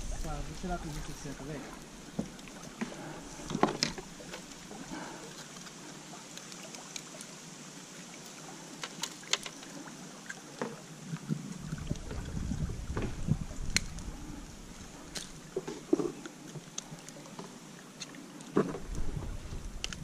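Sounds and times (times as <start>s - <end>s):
low rumble: 0.0s - 4.2s, 11.4s - 15.4s
water lapping around kayak: 0.0s - 20.0s
fishing tackle clicking on hull: 2.3s - 4.6s, 8.8s - 9.7s.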